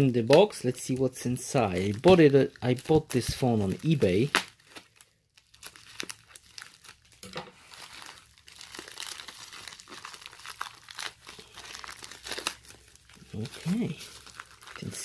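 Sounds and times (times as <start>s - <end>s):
plastic crinkling and tearing: 0.0s - 15.0s
scissors cutting plastic bag: 8.7s - 15.0s.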